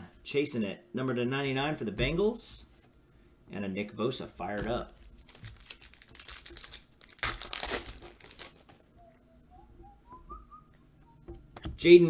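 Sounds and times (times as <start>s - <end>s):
trading cards rustling: 4.6s - 8.8s.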